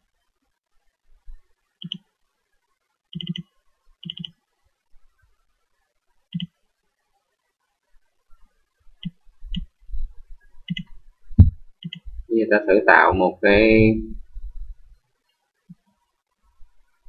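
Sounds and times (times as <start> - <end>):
computer mouse clicks: 1.8 - 2.1, 3.1 - 4.4, 6.3 - 6.6, 9.0 - 9.7, 10.6 - 11.0, 11.8 - 12.1.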